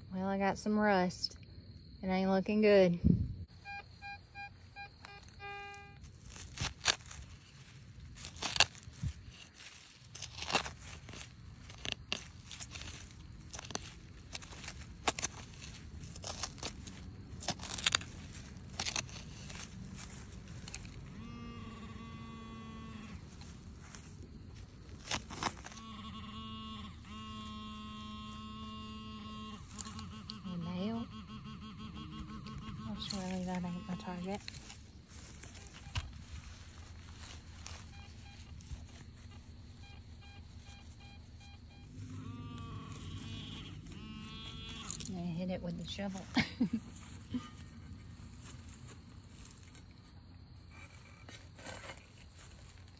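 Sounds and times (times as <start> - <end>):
metal detector buzzing tone: 3.5 - 7.2, 8.2 - 18.1, 18.8 - 24.0, 25.1 - 46.2
pinpointer warbling buzz: 3.6 - 6.0, 25.8 - 34.4, 41.5 - 45.1
trowel scraping through soil: 50.8 - 52.6.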